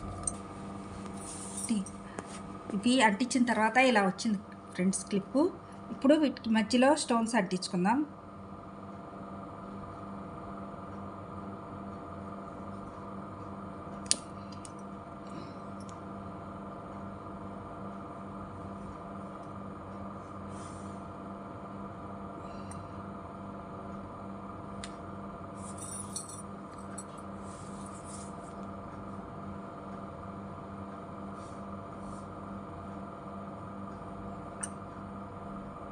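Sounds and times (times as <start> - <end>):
steady low hum: 0.0 - 35.9.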